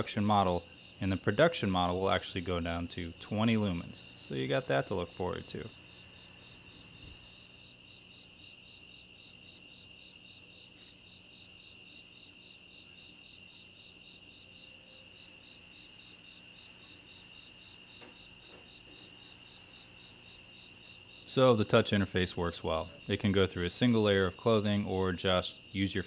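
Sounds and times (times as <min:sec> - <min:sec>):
crickets chirping: 0:00.0 - 0:26.0.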